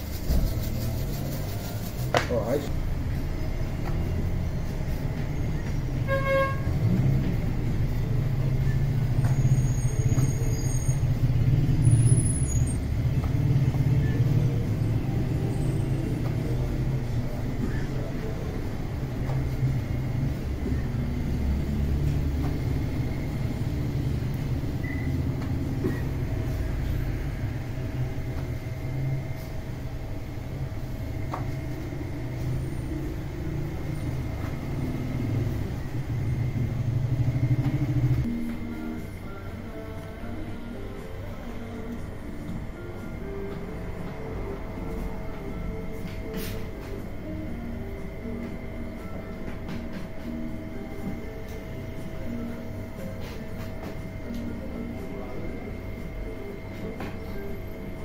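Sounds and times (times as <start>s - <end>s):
bread oven rumbling: 0.0s - 38.3s.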